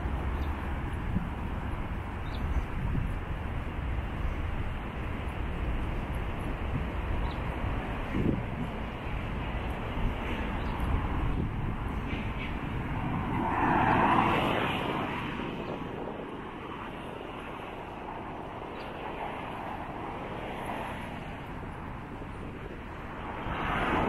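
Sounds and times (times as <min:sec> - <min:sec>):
road traffic noise: 0:00.0 - 0:24.0
vehicle passing: 0:07.5 - 0:18.2, 0:19.1 - 0:24.0.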